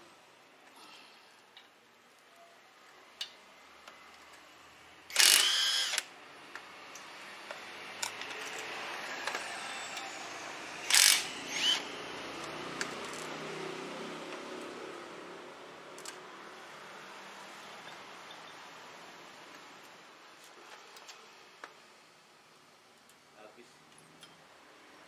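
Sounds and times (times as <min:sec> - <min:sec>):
power tool bursts: 0:05.1 - 0:06.1, 0:10.8 - 0:12.0.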